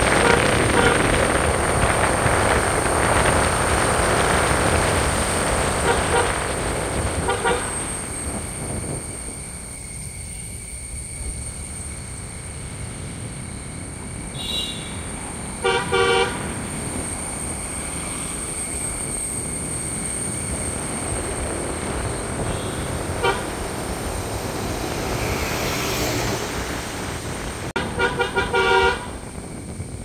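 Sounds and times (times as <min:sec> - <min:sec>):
car horn tooting: 0:00.0 - 0:01.2, 0:05.8 - 0:06.5, 0:07.2 - 0:07.9, 0:14.4 - 0:14.9, 0:15.6 - 0:16.5, 0:22.4 - 0:23.6, 0:27.8 - 0:29.2
car road and engine noise: 0:00.0 - 0:30.0.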